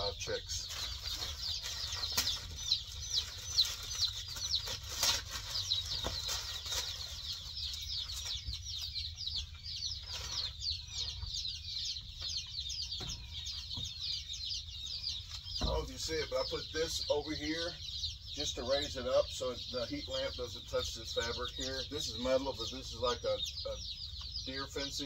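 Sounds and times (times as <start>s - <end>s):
chicks peeping: 0.0s - 25.0s
plastic tarp rustling: 0.5s - 7.5s.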